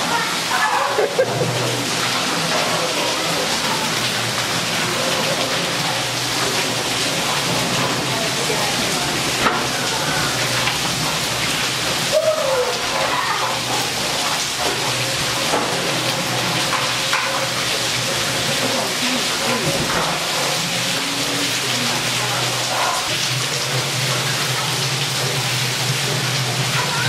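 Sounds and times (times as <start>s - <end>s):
heavy rain on paving: 0.0s - 27.0s
voices calling out: 18.4s - 20.0s.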